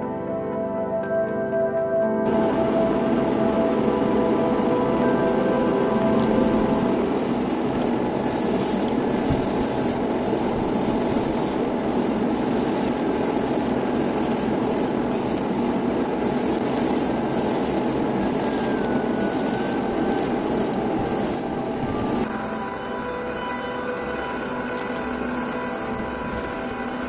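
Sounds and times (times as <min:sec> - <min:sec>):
extractor fan air rush: 0:02.3 - 0:27.0
airbrush spraying paint: 0:06.0 - 0:27.0.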